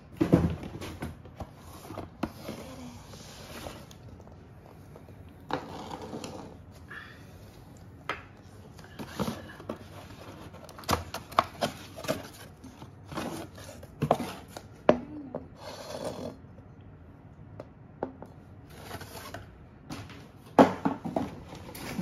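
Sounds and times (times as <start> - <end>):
cardboard box scraping and rustling: 11.5 - 14.6.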